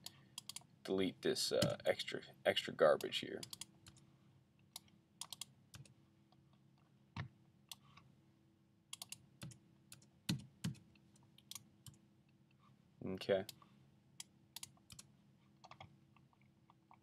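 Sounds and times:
keyboard and mouse clicks: 0.0 - 0.7, 3.0 - 4.0, 4.7 - 5.9, 8.9 - 10.8, 14.2 - 17.0.

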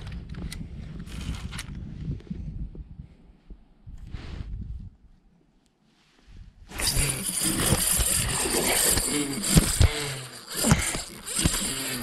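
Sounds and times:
wind buffeting microphone: 0.0 - 5.2.

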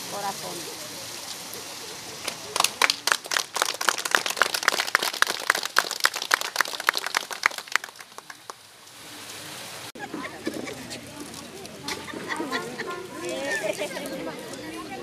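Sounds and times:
small group clapping: 2.2 - 8.7.

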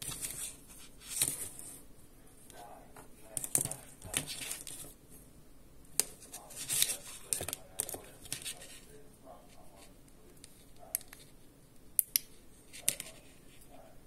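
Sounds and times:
earphone cable rustling: 0.0 - 1.8, 6.0 - 11.4.

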